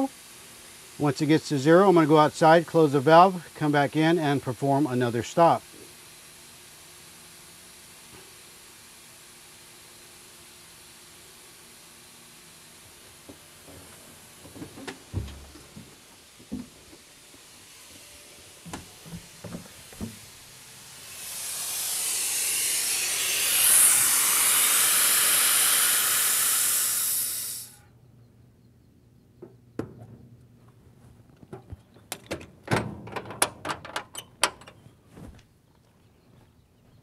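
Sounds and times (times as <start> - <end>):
compressed air hissing: 0.0 - 28.0
panel shutting and latching: 32.1 - 34.8.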